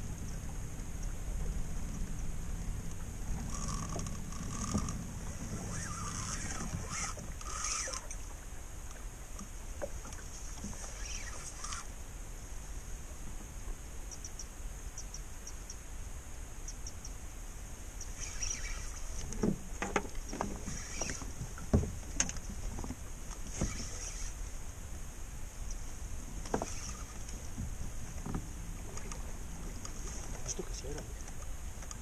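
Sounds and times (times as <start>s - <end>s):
water lapping against boat hull: 0.0s - 12.0s, 18.0s - 32.0s
sharp knocks on boat: 21.6s - 23.0s.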